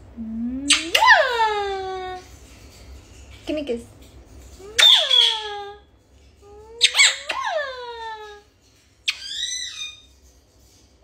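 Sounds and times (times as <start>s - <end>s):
parrot squawk: 4.8s - 5.8s, 6.8s - 8.4s, 9.0s - 10.1s.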